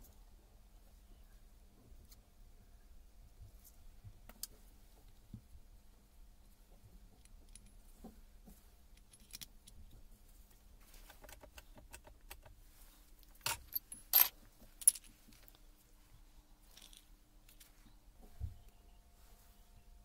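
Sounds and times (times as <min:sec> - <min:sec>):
metal parts clinking and rattling: 0:09.0 - 0:09.8, 0:13.4 - 0:15.6, 0:16.7 - 0:17.7.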